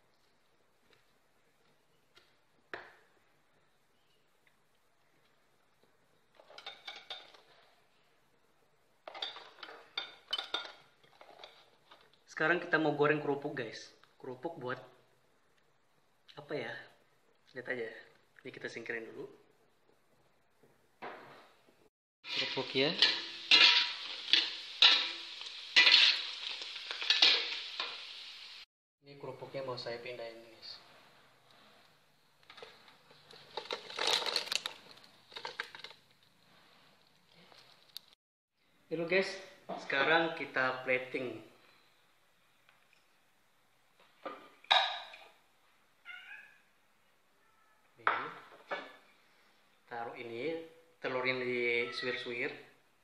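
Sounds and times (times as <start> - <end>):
crackers sizzling in hot oil: 22.2 - 28.7, 32.4 - 38.2
cat meowing: 46.0 - 46.7, 47.4 - 47.9, 51.8 - 52.2.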